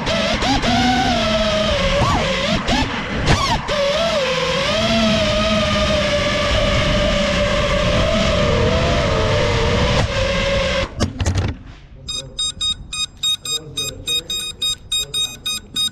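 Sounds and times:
quadcopter motors whining: 0:00.0 - 0:10.9
quick electronic beeping: 0:12.1 - 0:15.9.

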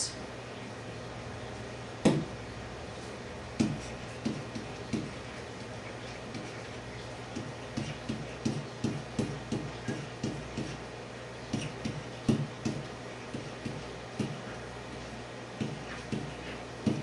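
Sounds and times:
pen tapping on a whiteboard: 0:03.6 - 0:05.2, 0:07.4 - 0:10.8, 0:11.5 - 0:14.4, 0:15.6 - 0:17.0.

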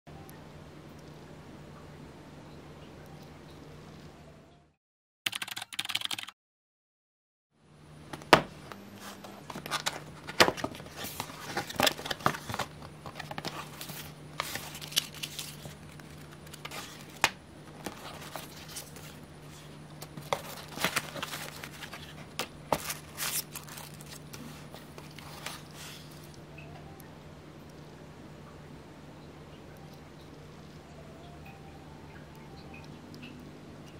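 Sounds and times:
steady low hum: 0:07.6 - 0:33.9
paper rustling: 0:09.0 - 0:26.3.

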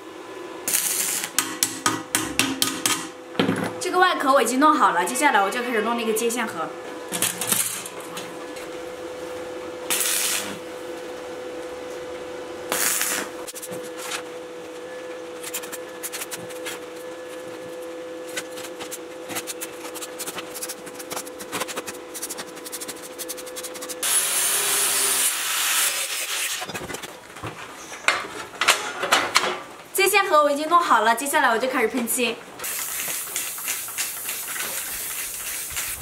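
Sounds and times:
constant hum: 0:00.0 - 0:25.2
welding arc crackling: 0:00.6 - 0:03.1, 0:09.9 - 0:10.9, 0:12.7 - 0:14.1, 0:18.2 - 0:26.7, 0:32.6 - 0:36.0
angle grinder grinding steel: 0:22.1 - 0:26.7.

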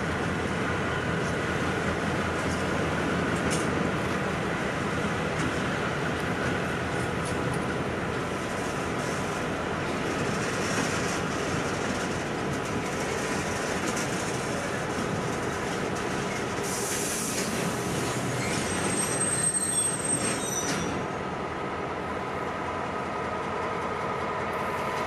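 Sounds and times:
diesel locomotives idling: 0:21.1 - 0:25.0.

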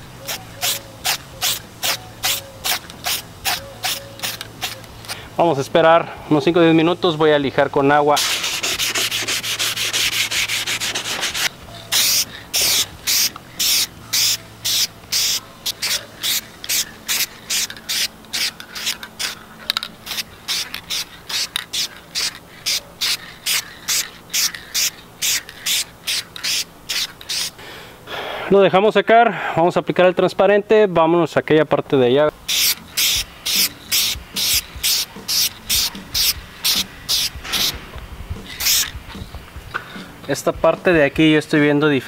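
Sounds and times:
aerosol spray can hissing: 0:00.2 - 0:05.2, 0:08.2 - 0:27.6, 0:32.5 - 0:39.3
sandpaper rubbing: 0:00.2 - 0:05.2, 0:08.2 - 0:27.6, 0:32.5 - 0:37.8, 0:38.4 - 0:39.3.

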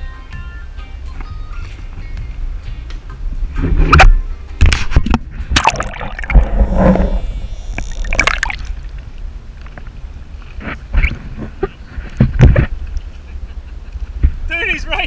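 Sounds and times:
water sloshing and gurgling: 0:04.7 - 0:09.3.

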